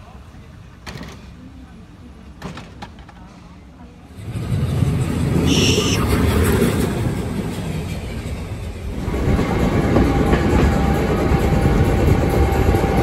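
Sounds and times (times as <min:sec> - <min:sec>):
steam train running: 0:04.1 - 0:13.0
brief high tone: 0:05.5 - 0:06.1.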